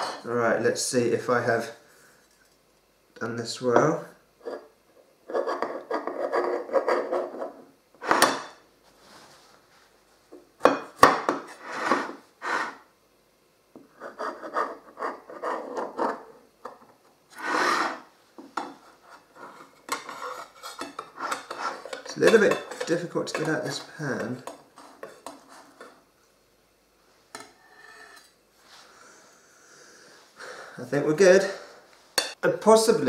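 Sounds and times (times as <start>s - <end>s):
knife scraping pie dish: 11.5s - 12.8s, 17.3s - 18.1s, 18.8s - 26.0s, 27.4s - 28.3s.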